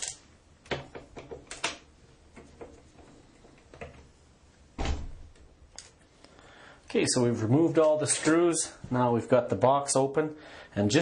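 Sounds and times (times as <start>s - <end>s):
loud thump: 4.8s - 5.3s.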